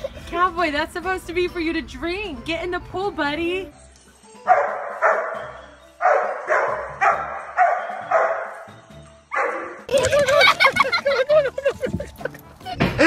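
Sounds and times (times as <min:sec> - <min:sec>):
dog barking: 0:04.5 - 0:08.7, 0:09.3 - 0:09.8.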